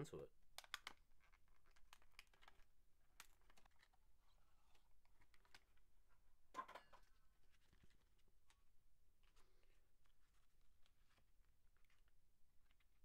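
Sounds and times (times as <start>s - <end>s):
plastic blister pack crackling: 0.6s - 5.8s.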